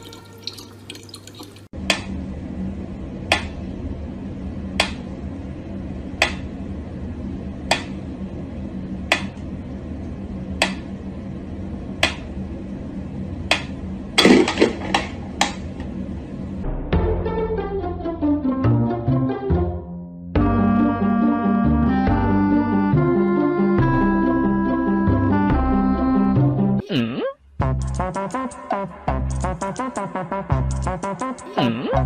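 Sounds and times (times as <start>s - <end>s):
tap water running: 0.0s - 1.7s
low steady hum: 0.0s - 16.8s.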